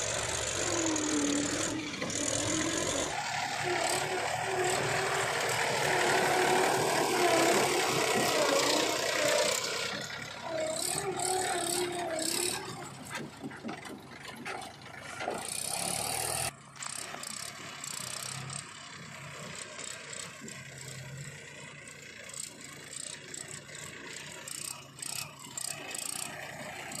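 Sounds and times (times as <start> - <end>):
diesel tractor engine working: 0.0 - 27.0.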